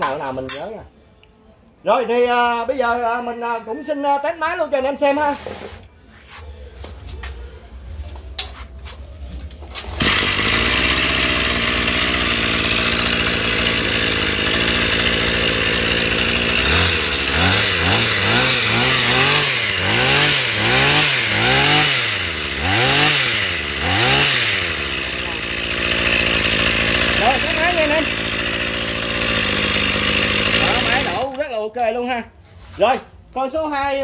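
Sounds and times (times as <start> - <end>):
brush cutter engine revving: 9.8 - 31.4.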